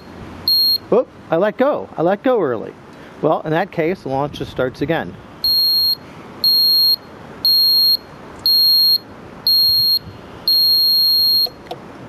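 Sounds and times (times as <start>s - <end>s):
high electronic buzzer beeps: 0.0s - 0.8s, 5.4s - 11.6s.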